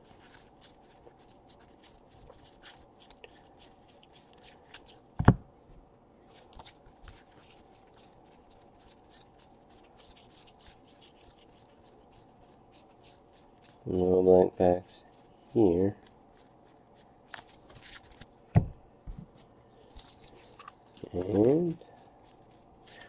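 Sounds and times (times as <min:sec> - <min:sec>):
dull thump: 0:18.5 - 0:19.2.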